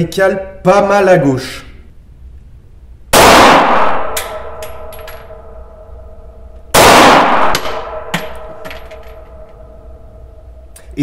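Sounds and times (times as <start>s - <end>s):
loud pistol shots: 3.1s - 4.9s, 6.7s - 9.2s
brass cases clinking on floor: 8.1s - 9.6s.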